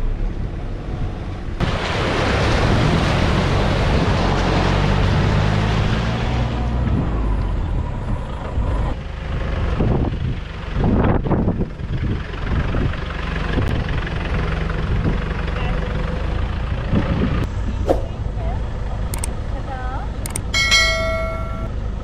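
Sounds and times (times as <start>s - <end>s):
wheels splashing through water: 0.6s - 11.0s
vehicle engine running: 8.0s - 22.0s
wind buffeting microphone: 9.6s - 14.1s.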